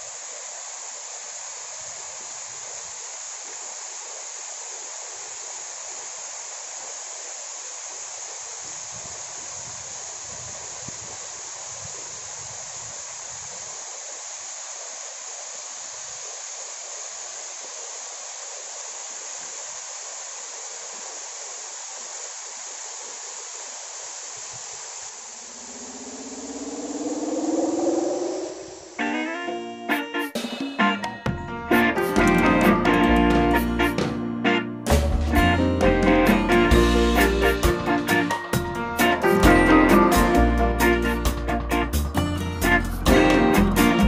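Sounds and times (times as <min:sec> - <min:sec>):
small waterfall splashing: 0:00.0 - 0:26.6.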